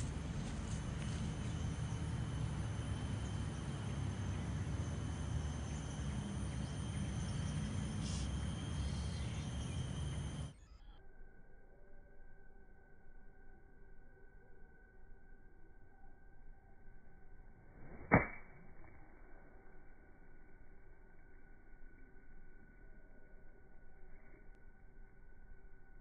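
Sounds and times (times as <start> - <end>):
low rumble: 0.0 - 10.6.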